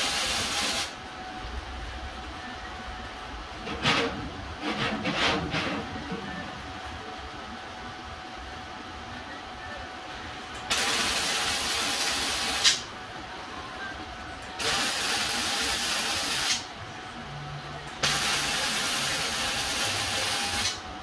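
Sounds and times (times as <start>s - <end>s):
welding arc crackling hiss: 0.0s - 1.0s, 10.6s - 12.9s, 14.6s - 16.7s, 18.0s - 20.8s.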